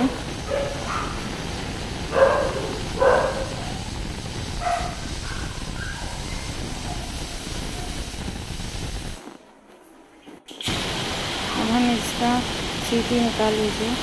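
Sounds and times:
gas burner hissing: 0.0 - 14.0
dog barking: 0.4 - 1.3, 2.1 - 3.8, 4.6 - 8.0.

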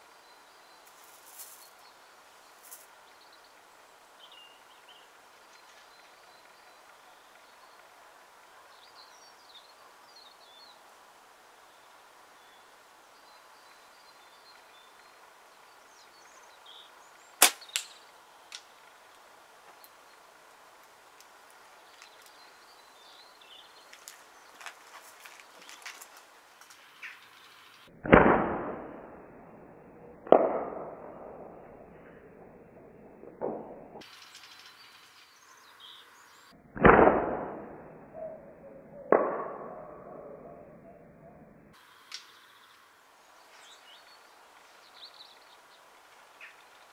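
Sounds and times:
slingshot snap: 17.4 - 18.7.

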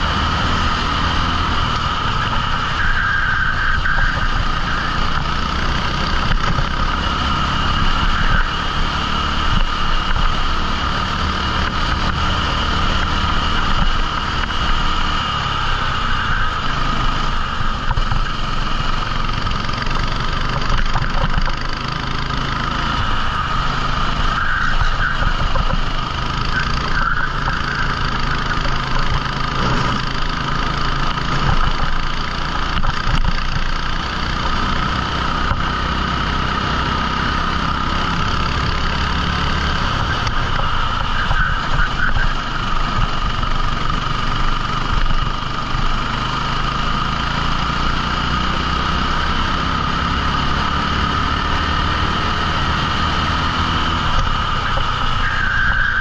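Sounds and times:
kart engine running: 0.0 - 56.0.

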